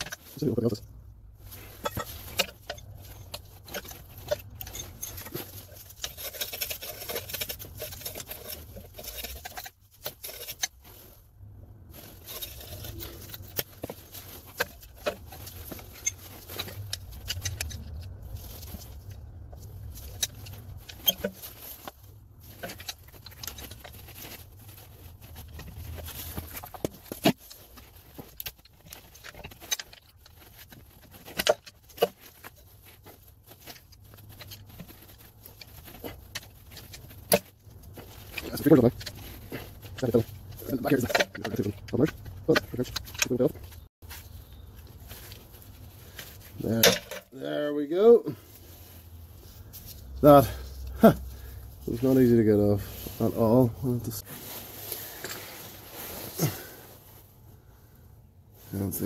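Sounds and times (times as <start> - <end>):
hand tools scraping metal: 1.4 - 11.2, 11.9 - 48.8.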